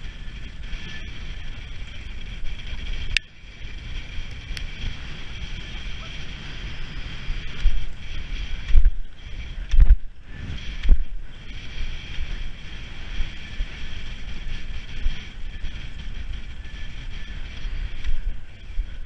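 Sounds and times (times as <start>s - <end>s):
wind buffeting microphone: 0.0s - 19.0s
heavy low thumps: 6.4s - 13.4s.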